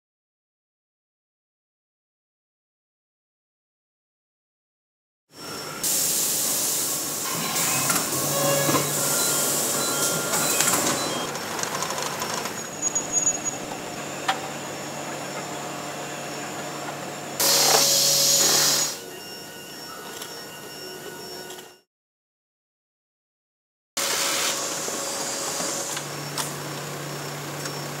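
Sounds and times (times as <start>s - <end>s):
machinery humming: 5.4s - 21.8s, 24.0s - 28.0s
hissing rush of air: 5.8s - 11.2s.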